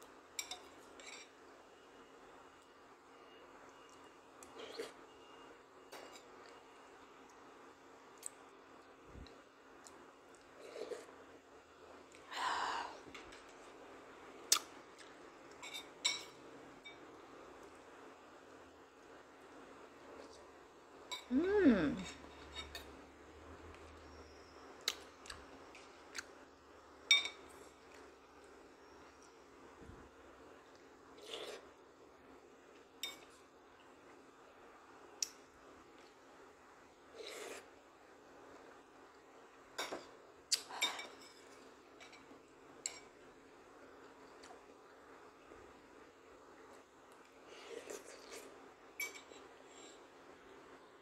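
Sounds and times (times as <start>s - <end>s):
metal spoon clinking on dishes: 0.4s - 1.4s, 15.5s - 17.0s, 27.1s - 27.5s, 33.0s - 33.4s, 49.0s - 49.4s.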